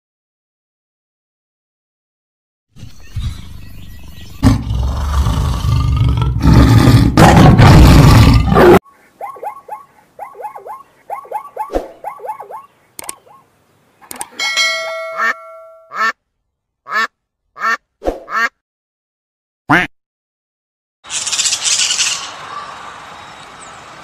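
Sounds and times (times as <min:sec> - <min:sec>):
tiger growling and roaring: 0:04.4 - 0:08.8
zebra barking call: 0:08.8 - 0:13.5.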